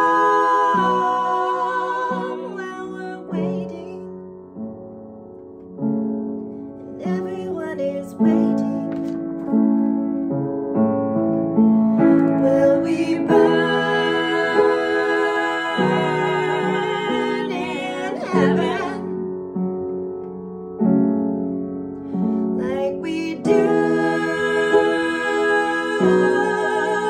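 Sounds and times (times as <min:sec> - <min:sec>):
woman singing: 0:00.0 - 0:04.2, 0:07.0 - 0:09.0, 0:12.3 - 0:19.2, 0:22.6 - 0:27.0
upright piano chords: 0:00.0 - 0:27.0.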